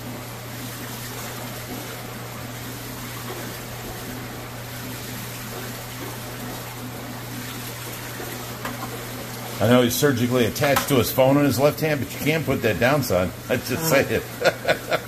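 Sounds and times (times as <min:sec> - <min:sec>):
pump hum: 0:00.0 - 0:15.0.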